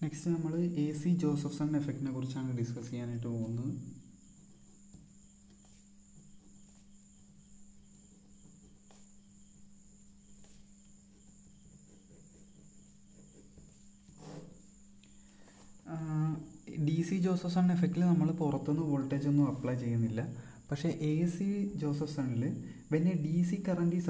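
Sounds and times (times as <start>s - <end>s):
pen scratching on paper: 4.3s - 14.8s.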